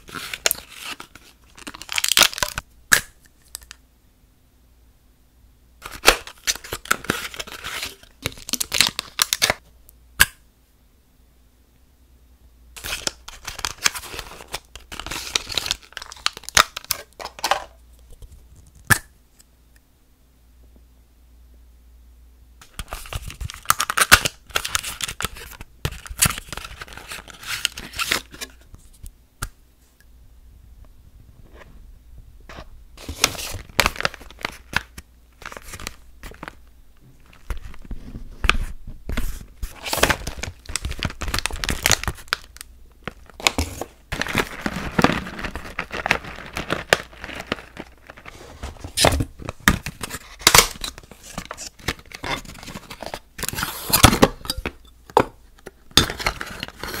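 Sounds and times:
plastic packaging crinkling: 0:00.0 - 0:02.6, 0:05.8 - 0:09.6, 0:12.8 - 0:18.8, 0:22.7 - 0:28.6, 0:33.0 - 0:54.8.

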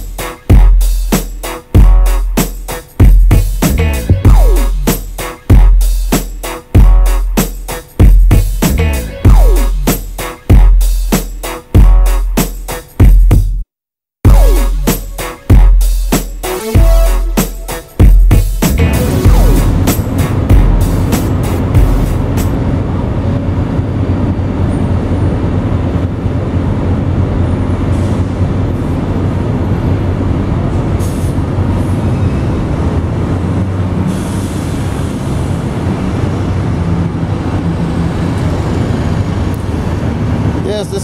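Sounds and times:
crane machinery drone: 0:18.8 - 0:41.0.

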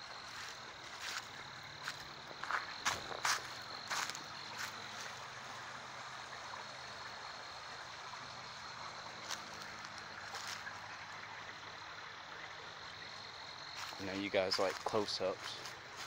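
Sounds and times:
high-pitched insect drone: 0:00.0 - 0:05.1, 0:12.7 - 0:16.0
distant traffic hum: 0:00.0 - 0:16.0
footsteps on dirt and leaves: 0:00.2 - 0:05.2, 0:09.2 - 0:10.8, 0:13.8 - 0:16.0.

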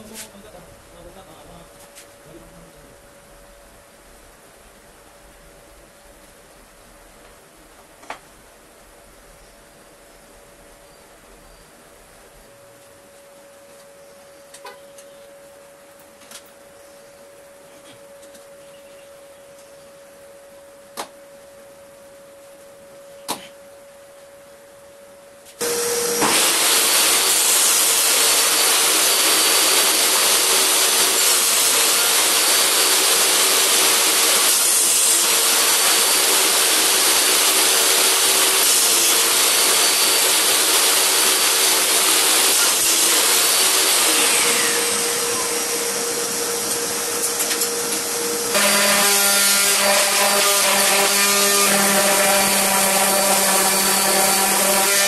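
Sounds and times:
random orbital sander running: 0:25.6 - 0:55.0
table saw humming: 0:25.6 - 0:55.0.

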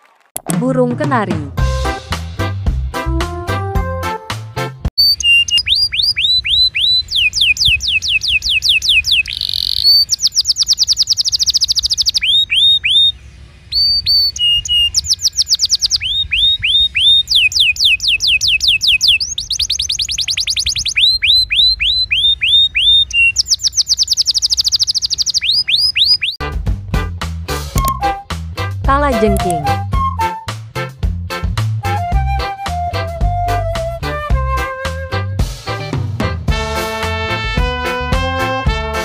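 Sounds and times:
canary singing: 0:05.0 - 0:26.4.

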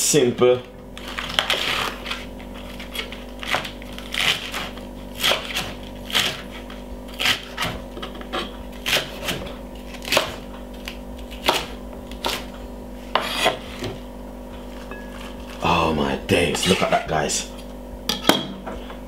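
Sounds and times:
knife crunching through lettuce: 0:00.9 - 0:14.0, 0:14.6 - 0:15.9.

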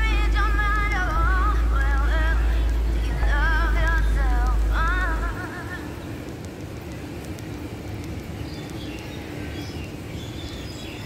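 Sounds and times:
low rumble of city noise: 0:00.0 - 0:11.0
small birds chirping: 0:05.8 - 0:11.0.

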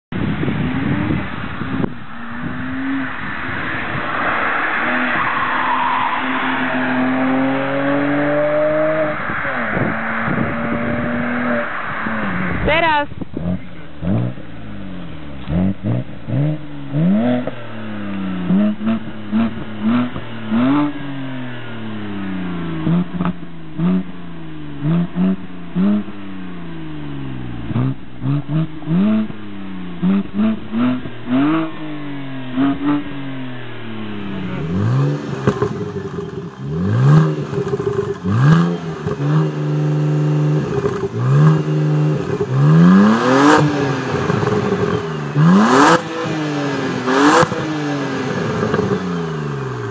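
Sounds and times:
car engine idling: 0:00.1 - 0:49.9
car exhaust revving: 0:00.1 - 0:49.9
exhaust cracks: 0:27.5 - 0:49.9.

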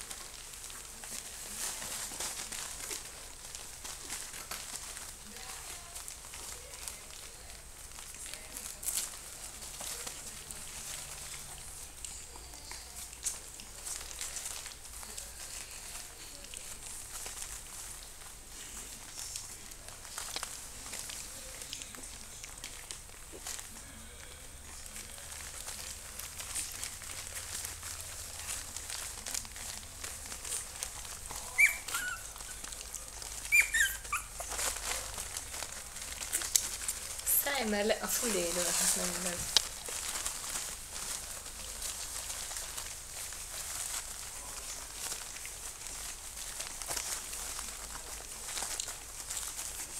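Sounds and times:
puppies scuffling and rustling: 0:00.0 - 0:49.9
puppies squealing: 0:31.4 - 0:34.9.

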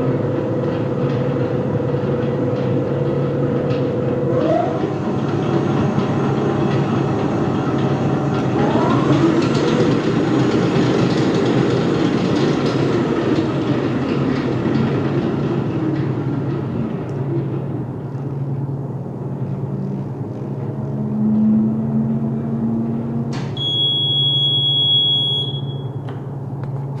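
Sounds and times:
high electronic beep: 0:23.6 - 0:26.0.

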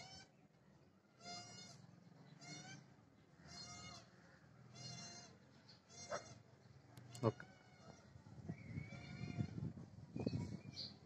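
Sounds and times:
high-pitched animal calls: 0:02.4 - 0:04.1, 0:04.7 - 0:06.4.

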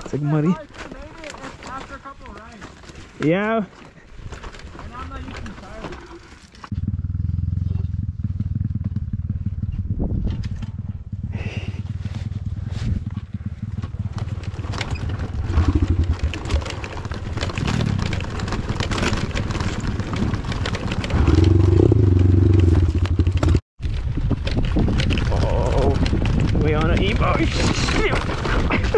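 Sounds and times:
rattling over bumps: 0:00.0 - 0:07.0, 0:07.9 - 0:28.9
motorbike engine revving: 0:06.7 - 0:23.6
wind noise: 0:09.3 - 0:13.5, 0:14.7 - 0:28.9.

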